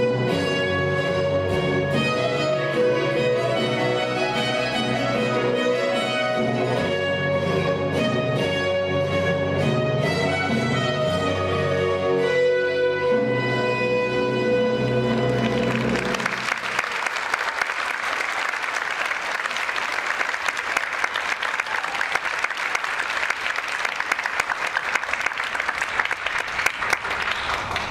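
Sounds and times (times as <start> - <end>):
audience applauding: 15.1 - 27.9.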